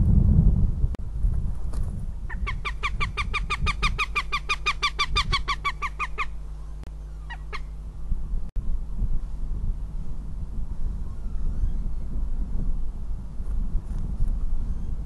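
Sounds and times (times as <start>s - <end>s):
hawk sharp kek calls: 7.1s - 7.8s.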